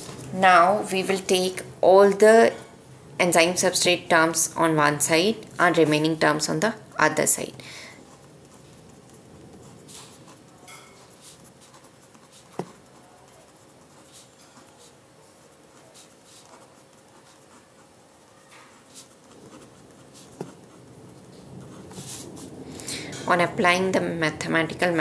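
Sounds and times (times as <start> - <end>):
pen scratching on paper: 7.3 - 22.6.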